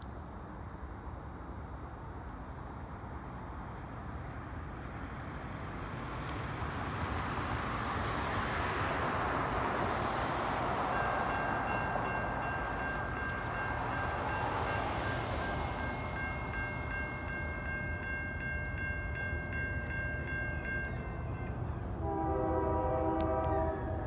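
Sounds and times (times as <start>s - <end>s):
road traffic rushing: 1.8s - 24.0s
distant train horn: 20.8s - 24.0s.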